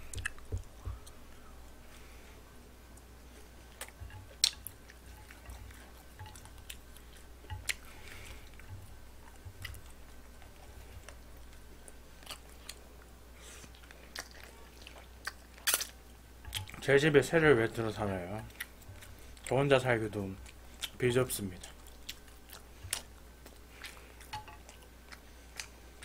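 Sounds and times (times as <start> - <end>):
person chewing and slurping noodles: 3.4 - 16.8, 21.6 - 26.0.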